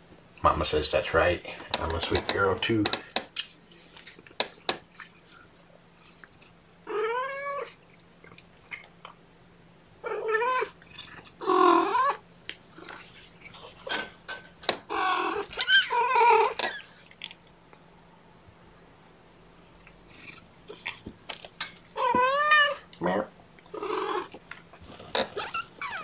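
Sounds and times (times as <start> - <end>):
faint taps and rustles: 1.5 - 5.2
cat meowing: 6.9 - 7.7, 10.0 - 10.8, 22.0 - 22.9.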